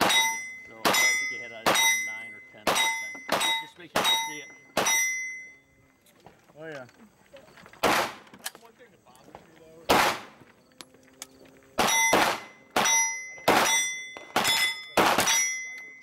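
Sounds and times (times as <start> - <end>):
rifle shots: 0.0 - 2.0, 2.6 - 5.0, 7.8 - 8.3, 9.9 - 10.4, 11.8 - 15.5
steel targets ringing: 0.0 - 5.8, 11.8 - 16.0.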